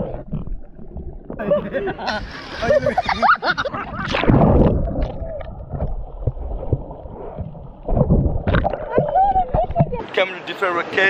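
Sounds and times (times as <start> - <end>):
low rumble of water: 0.0 - 10.2
sea water sloshing and splashing: 2.4 - 10.2.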